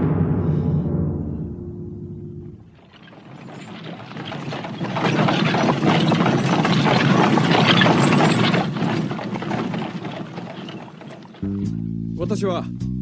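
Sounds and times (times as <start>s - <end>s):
horse hooves and cart wheels clattering: 2.6s - 11.9s.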